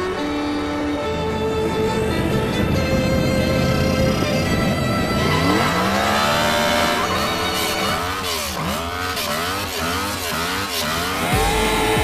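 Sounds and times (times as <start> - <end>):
motorcycle engine revving: 0.1 - 12.0.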